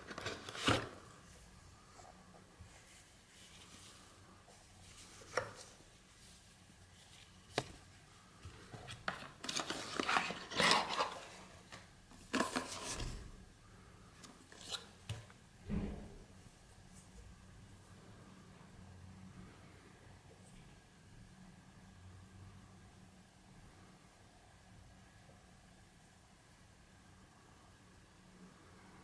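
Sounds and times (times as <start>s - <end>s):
cardboard rustling and scraping: 0.0s - 1.4s, 8.6s - 13.2s.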